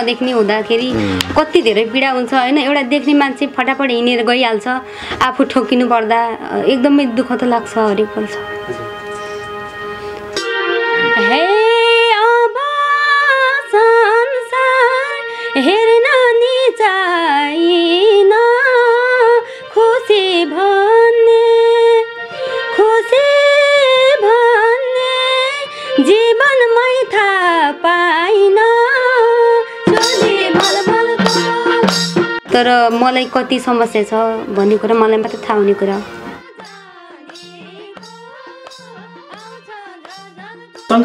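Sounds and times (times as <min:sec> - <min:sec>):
woman singing: 0:00.0 - 0:08.5, 0:11.0 - 0:41.0
drum beats: 0:00.2 - 0:02.8, 0:10.2 - 0:11.5, 0:29.8 - 0:41.0.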